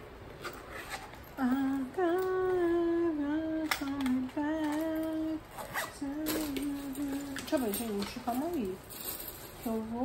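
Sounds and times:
woman humming: 0:01.4 - 0:07.8.

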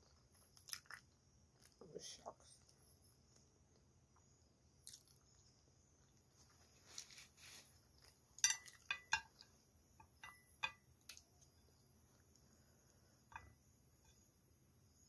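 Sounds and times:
soft chewing: 0:00.0 - 0:14.9
chopsticks clicking on a plate: 0:08.4 - 0:11.2.

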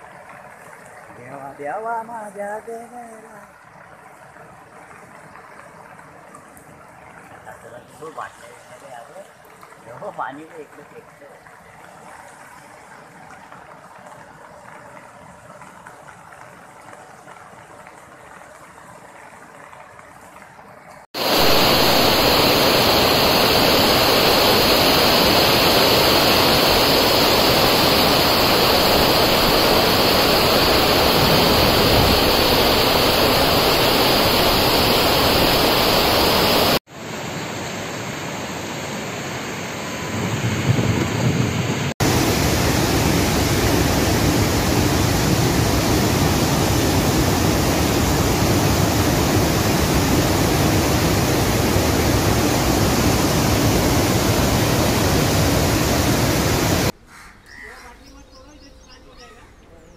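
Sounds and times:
heavy rain pouring: 0:21.2 - 0:36.8, 0:40.1 - 0:56.9
water rushing over dam gates: 0:21.2 - 0:36.8, 0:42.0 - 0:56.9.

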